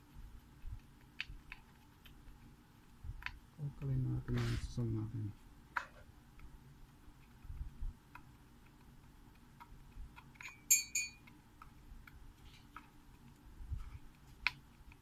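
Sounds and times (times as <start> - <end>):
sharp metallic clinks: 10.4 - 11.2.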